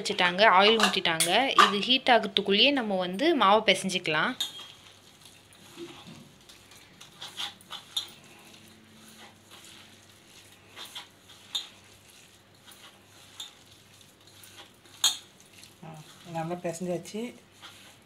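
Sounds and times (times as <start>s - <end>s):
batter squishing: 4.4s - 18.0s.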